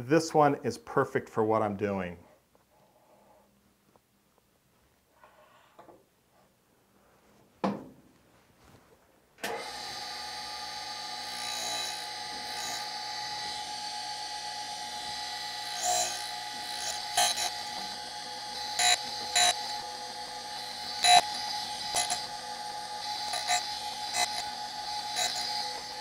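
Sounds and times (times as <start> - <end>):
knock: 7.6 - 8.0
surface grinder whining: 9.5 - 26.0.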